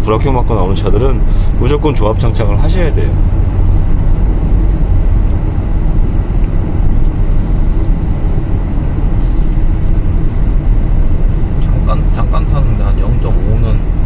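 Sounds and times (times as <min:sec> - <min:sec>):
road and engine rumble in car: 0:00.0 - 0:14.0.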